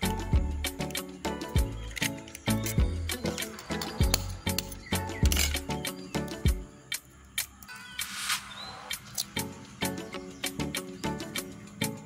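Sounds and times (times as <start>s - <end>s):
faint background music: 0.0s - 12.0s.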